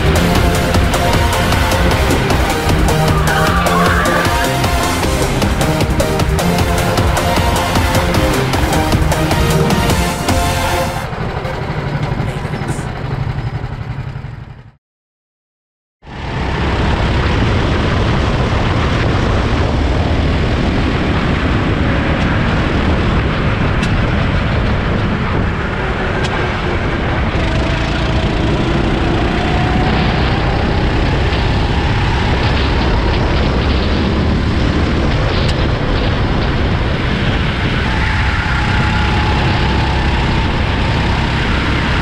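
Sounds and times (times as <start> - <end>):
music: 0.0 - 12.8
go-kart engine running: 0.0 - 14.8, 16.1 - 42.0
wind rushing over microphone: 16.1 - 42.0.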